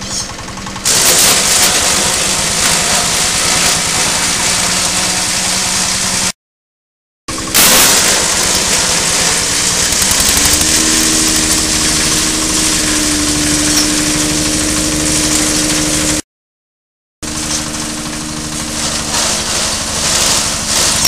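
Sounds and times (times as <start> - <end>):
chopper machine engine drone: 0.0 - 6.3, 7.3 - 16.2, 17.2 - 21.0
loud noisy burst: 0.0 - 6.4, 7.3 - 16.2, 17.2 - 21.0
steady tone: 10.0 - 16.2.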